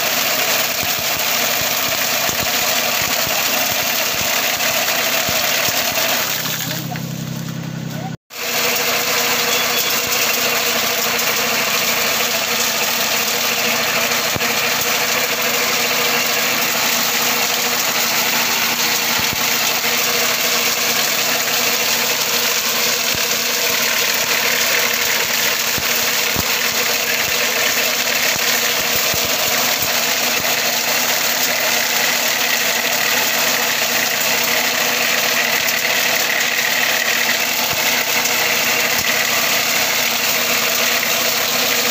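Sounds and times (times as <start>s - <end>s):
machine rotors whining: 0.0s - 41.9s
tractor engine running under load: 0.0s - 41.9s.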